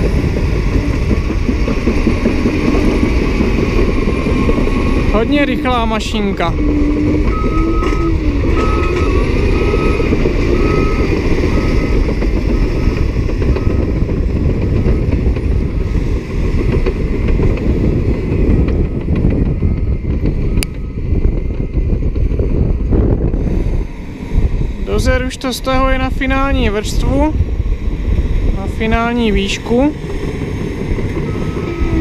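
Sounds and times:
bulldozer engine and tracks clattering: 0.0s - 32.0s
reversing alarm beeping: 4.0s - 5.9s, 6.6s - 16.0s, 19.4s - 21.8s, 31.2s - 32.0s.

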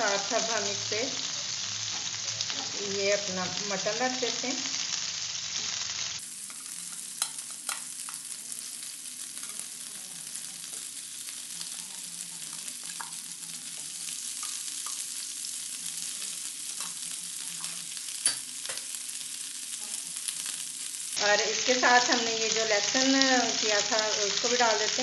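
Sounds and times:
meat sizzling in butter: 0.0s - 25.0s.

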